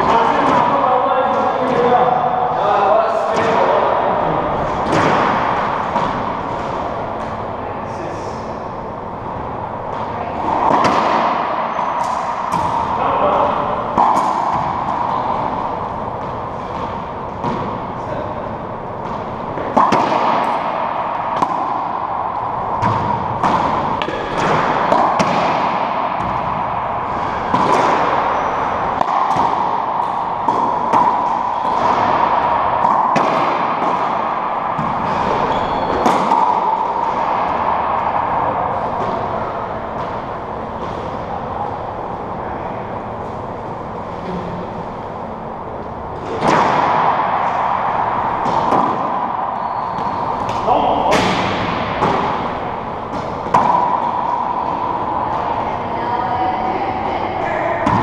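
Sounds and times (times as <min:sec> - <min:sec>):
steady background noise: 0:00.0 - 0:58.0
ball cracking off racquets and walls: 0:09.9 - 0:17.8, 0:19.0 - 0:41.2, 0:46.2 - 0:55.4.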